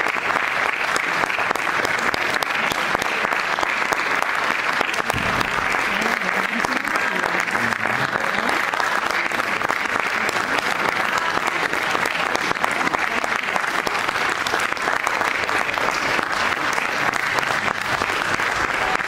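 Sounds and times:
audience applauding: 0:00.0 - 0:19.0.

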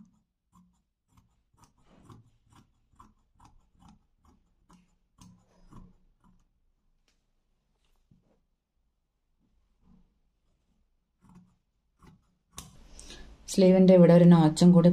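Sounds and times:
scissors snipping cloth: 0:00.0 - 0:06.7, 0:11.1 - 0:13.2.

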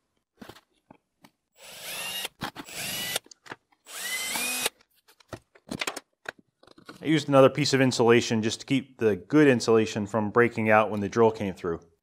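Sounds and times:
cordless drill whining: 0:01.6 - 0:04.8.

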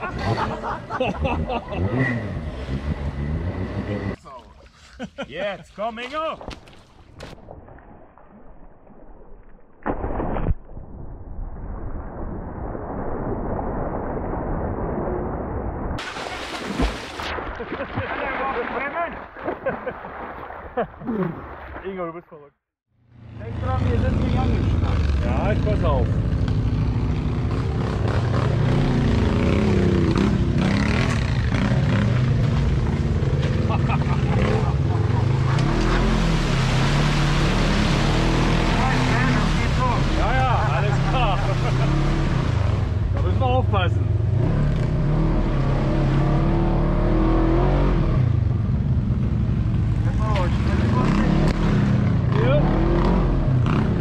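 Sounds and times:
utility vehicle engine revving: 0:00.0 - 0:04.2, 0:23.1 - 0:54.0
heavy splash into water: 0:16.0 - 0:21.9, 0:35.8 - 0:43.0
water churning and sloshing: 0:16.0 - 0:22.2, 0:32.1 - 0:43.6.

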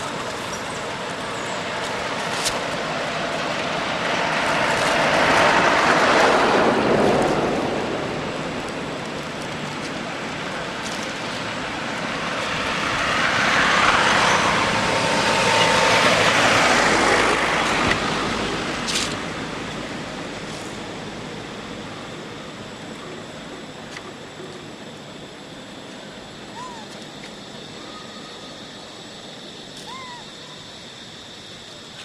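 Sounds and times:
vehicle passing by: 0:01.6 - 0:09.4, 0:10.3 - 0:21.8.

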